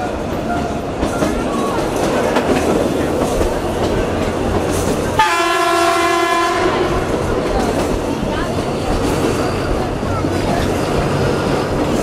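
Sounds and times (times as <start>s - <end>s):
train rumbling: 0.0s - 12.0s
locomotive horn blast: 5.2s - 7.1s.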